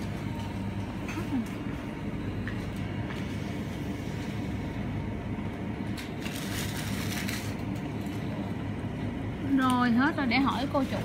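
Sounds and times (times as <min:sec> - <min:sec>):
freezer hum: 0:00.0 - 0:11.0
plastic bags rustling: 0:05.9 - 0:08.5, 0:10.2 - 0:11.0.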